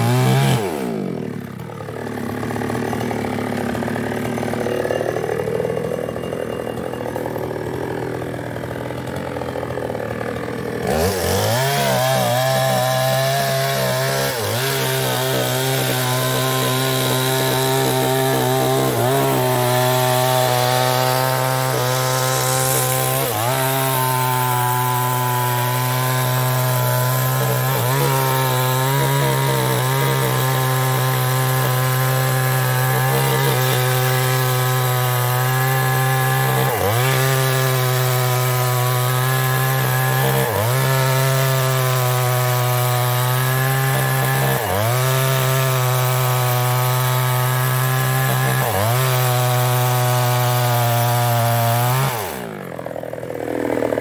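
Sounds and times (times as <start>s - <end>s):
chainsaw cutting wood: 0.0s - 54.0s.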